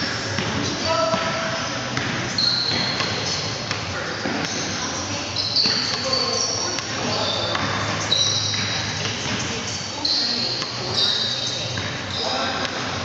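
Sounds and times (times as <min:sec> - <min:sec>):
sneakers squeaking on gym floor: 0:00.0 - 0:13.0
basketball bouncing: 0:00.2 - 0:04.6, 0:06.8 - 0:09.5, 0:11.7 - 0:12.0.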